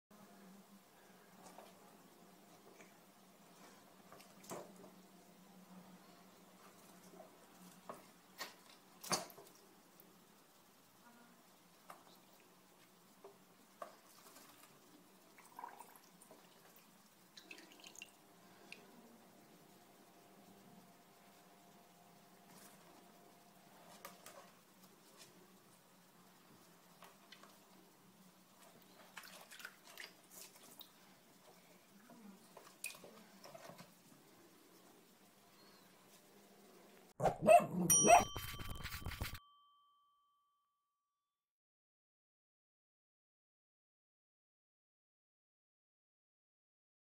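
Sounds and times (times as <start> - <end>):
faint steady hum: 0.2 - 29.3
water splashing and dripping: 13.7 - 18.8, 28.6 - 31.7, 32.5 - 33.9
small water splashes: 28.8 - 31.7.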